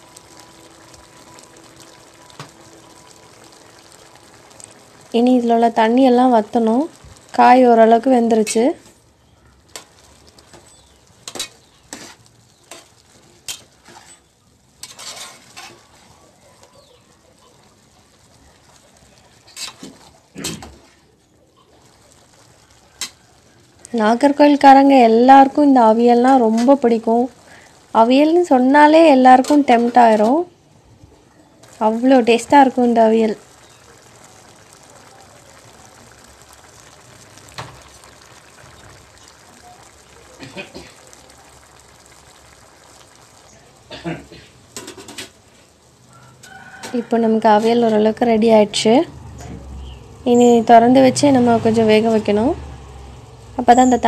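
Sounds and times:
faint simmering: 0.0s - 54.0s
spatula scraping metal pot: 10.6s - 12.9s, 13.5s - 15.9s.

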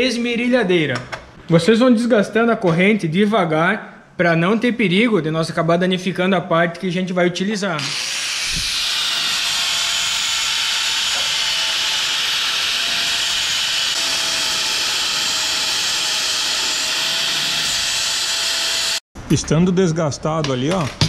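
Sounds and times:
angle grinder grinding metal: 7.8s - 19.0s.

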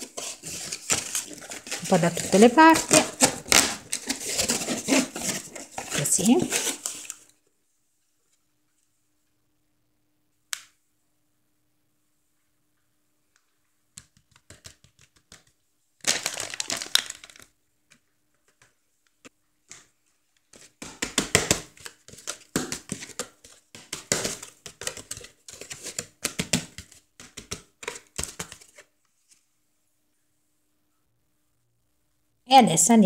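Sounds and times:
paper mould crackling and rustling: 0.0s - 7.2s, 16.0s - 17.5s.

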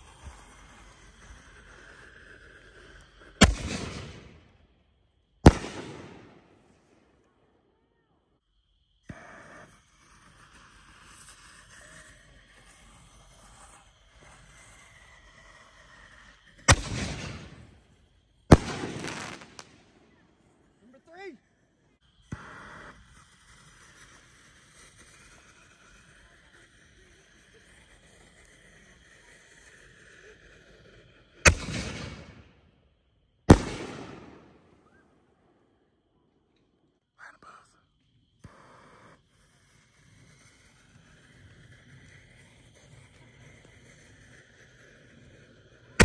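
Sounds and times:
firework fuse hissing: 0.0s - 4.7s, 5.4s - 7.0s, 9.0s - 32.6s, 33.5s - 35.8s, 37.2s - 46.0s
firework shells booming: 3.4s - 4.5s, 5.4s - 6.7s, 16.7s - 17.9s, 18.5s - 20.0s, 31.5s - 32.6s, 33.5s - 35.2s
firework launch thump: 18.5s - 19.7s.

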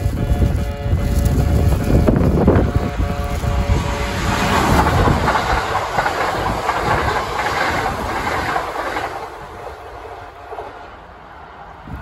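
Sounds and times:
electric train running past: 0.0s - 12.0s
wheels clattering over rails: 4.0s - 9.8s.

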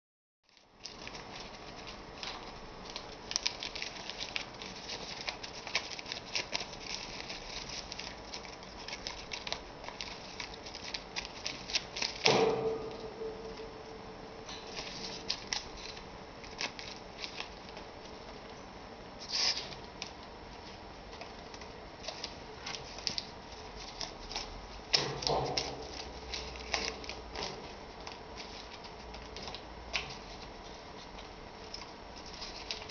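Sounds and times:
paper crackling and rustling: 0.5s - 13.7s, 14.5s - 18.6s, 19.2s - 32.9s
steady low hum: 0.5s - 32.9s
loud sharp sound: 12.2s - 15.2s.

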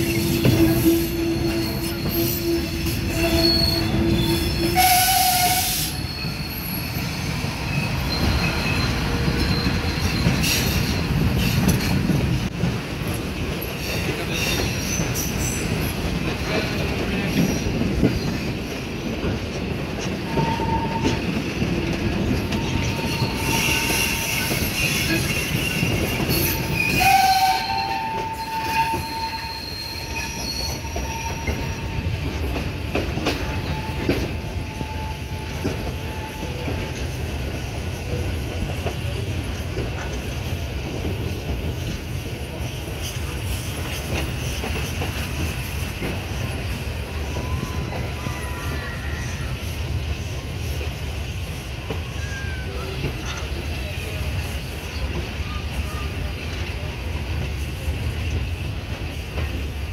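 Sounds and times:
wheel squeals: 0.0s - 11.9s, 20.3s - 32.6s
train wheels rumbling on rails: 0.0s - 59.9s.

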